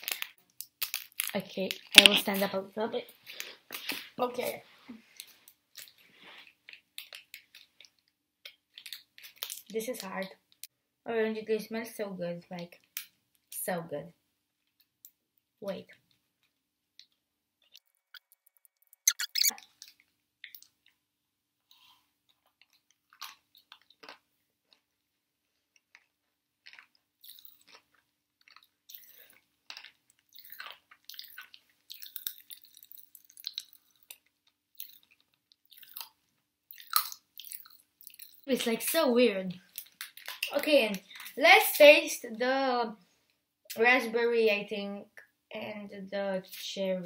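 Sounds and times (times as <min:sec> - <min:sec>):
person chewing candy: 0:00.0 - 0:02.0, 0:05.2 - 0:09.7, 0:16.1 - 0:21.0, 0:21.7 - 0:38.5, 0:39.6 - 0:41.3.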